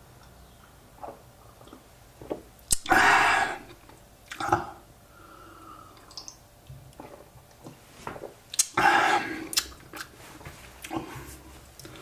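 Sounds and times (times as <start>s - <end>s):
lip clicks: 2.6s - 2.9s, 6.0s - 7.0s, 8.5s - 8.8s, 9.5s - 10.1s
person sipping a drink: 10.8s - 12.0s.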